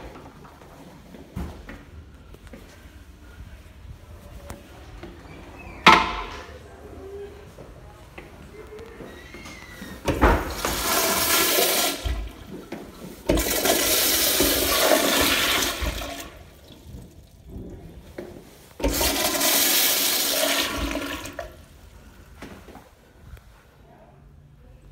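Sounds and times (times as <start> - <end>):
toilet flushing: 9.8 - 21.8.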